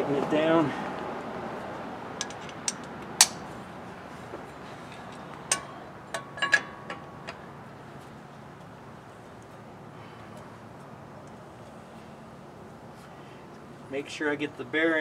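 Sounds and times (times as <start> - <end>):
socket wrench metallic clinks: 2.2 - 3.4, 5.0 - 7.5.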